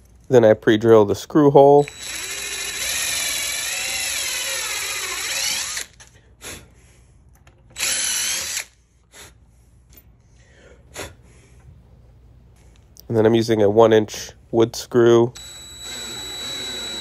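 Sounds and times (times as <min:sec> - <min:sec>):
cordless drill whining: 0:01.8 - 0:06.2, 0:07.7 - 0:08.8, 0:15.4 - 0:17.0.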